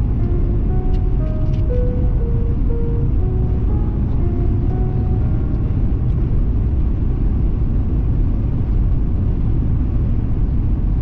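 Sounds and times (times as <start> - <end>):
car road noise from inside: 0.0 - 11.0.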